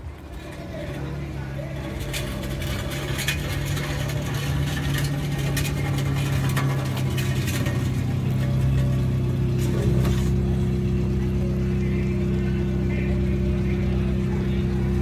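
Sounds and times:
pickup truck engine running: 0:00.0 - 0:15.0
clicks and crackles: 0:01.7 - 0:10.4.

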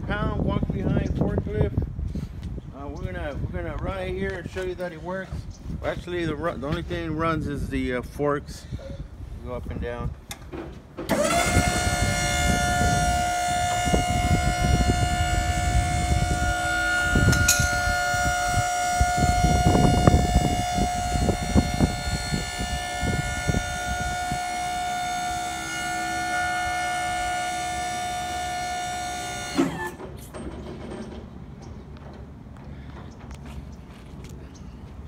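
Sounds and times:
hydraulic pump motor whining: 0:10.3 - 0:31.3.

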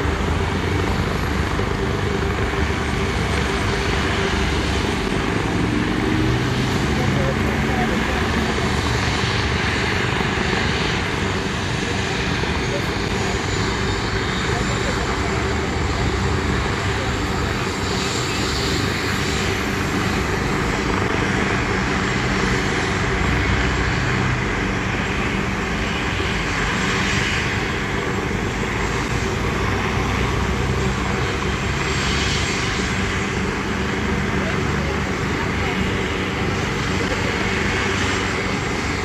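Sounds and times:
traffic noise: 0:00.0 - 0:09.6
helicopter engine and rotor drone: 0:00.0 - 0:39.0.

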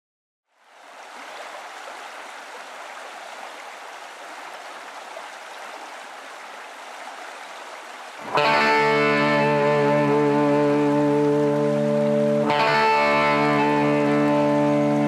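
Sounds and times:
running water rushing: 0:00.5 - 0:15.0
guitar music: 0:08.2 - 0:15.0.

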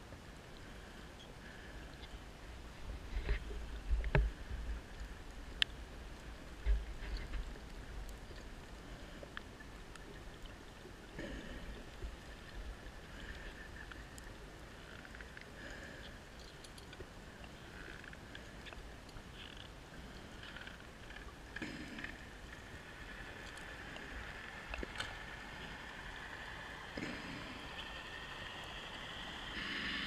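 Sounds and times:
underwater low rumble: 0:00.0 - 0:30.0
soft hissing swells: 0:07.6 - 0:30.0.

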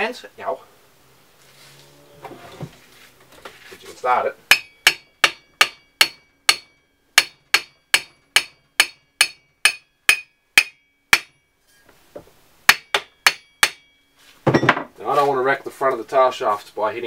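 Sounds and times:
hammer knocking on metal shaft: 0:04.5 - 0:11.3.

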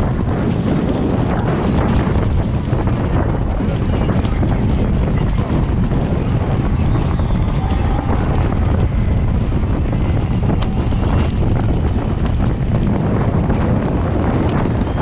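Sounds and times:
galloping hooves on turf: 0:00.0 - 0:15.0
wind buffeting microphone: 0:00.0 - 0:15.0.

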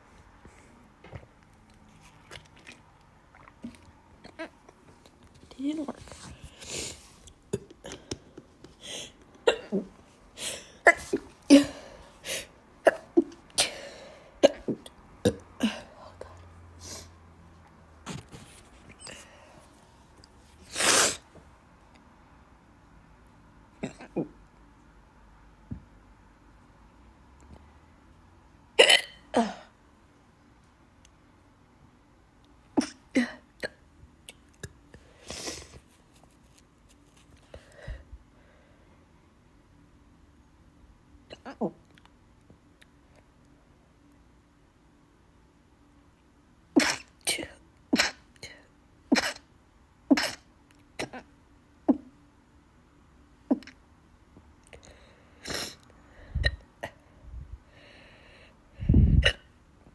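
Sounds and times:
woman hiccuping: 0:50.2 - 0:51.3.

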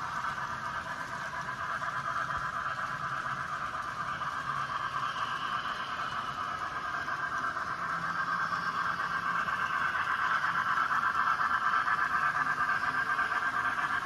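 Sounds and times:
model trains running: 0:00.0 - 0:14.0.

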